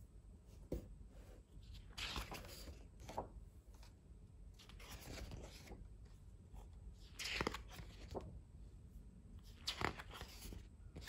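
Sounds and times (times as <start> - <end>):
paper pages rustling: 1.6 - 4.0, 4.6 - 8.4, 9.5 - 11.0.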